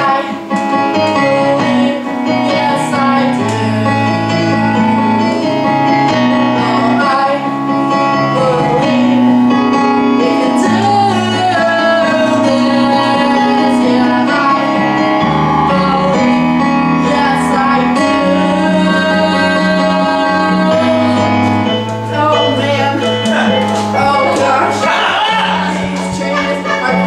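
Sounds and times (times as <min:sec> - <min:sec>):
live instrumental accompaniment: 0:00.0 - 0:27.0
woman singing show tune: 0:06.3 - 0:09.4, 0:10.2 - 0:23.3, 0:23.9 - 0:27.0.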